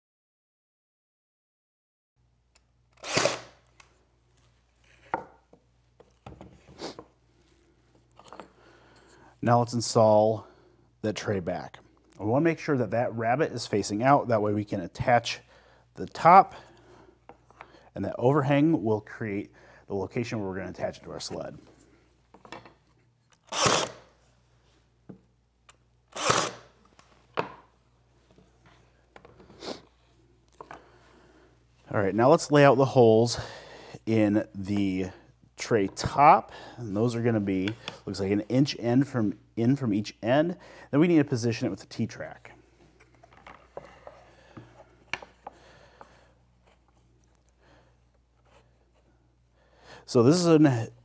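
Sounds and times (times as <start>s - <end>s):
pin nailer firing: 3.0s - 3.6s, 23.5s - 24.0s, 26.2s - 26.7s.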